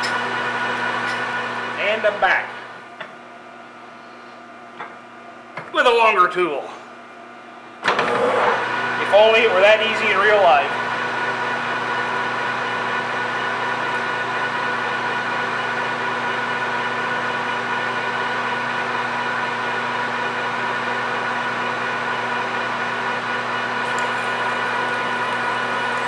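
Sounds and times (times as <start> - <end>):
lathe running and drilling: 0.0 - 2.7, 7.9 - 26.0.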